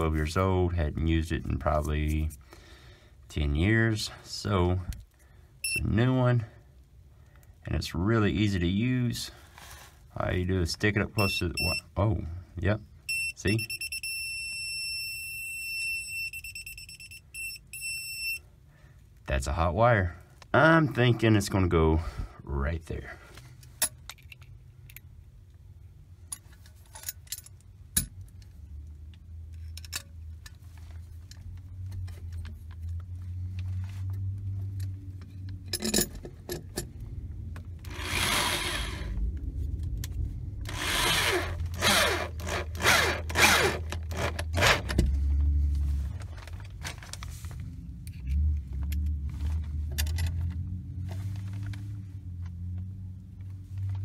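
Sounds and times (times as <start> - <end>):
cordless drill motor hum: 37.8 - 39.2, 40.7 - 44.9
screws scraping through metal: 37.9 - 39.1, 40.7 - 45.0.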